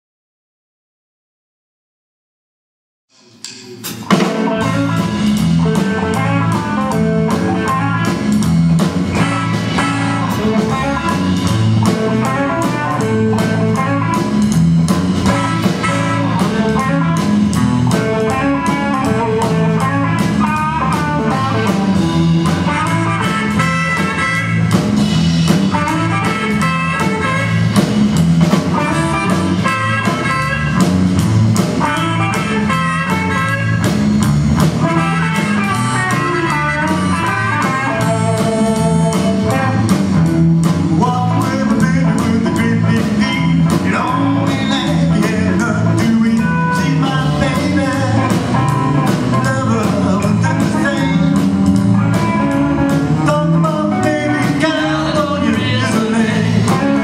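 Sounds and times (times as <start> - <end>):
blues band playing: 3.4 - 57.0.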